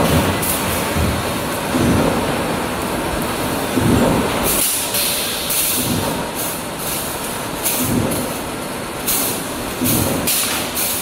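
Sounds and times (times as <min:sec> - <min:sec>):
steady machine noise: 0:00.0 - 0:11.0.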